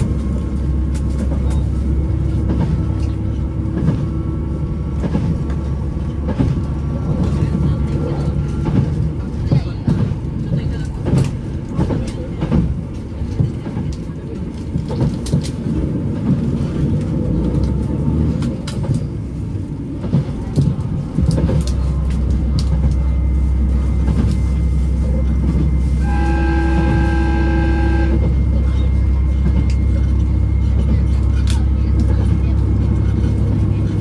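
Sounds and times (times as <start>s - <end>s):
train engine drone: 0.0s - 34.0s
train horn: 25.9s - 28.5s.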